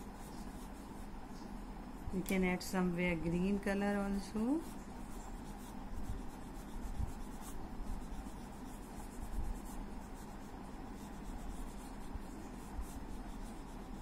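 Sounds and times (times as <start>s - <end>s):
crayon rubbing on paper: 4.4s - 14.0s.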